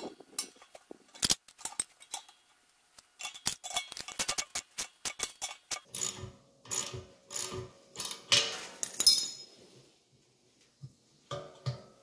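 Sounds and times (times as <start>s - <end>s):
small metal clicks: 0.1s - 9.3s.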